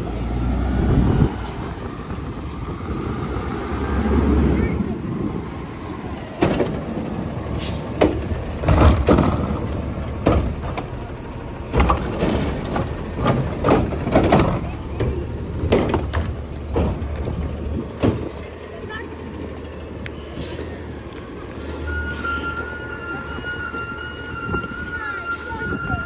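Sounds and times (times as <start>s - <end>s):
truck engine hum: 0.0s - 26.0s
clanks and bangs of trash cart: 6.2s - 18.5s.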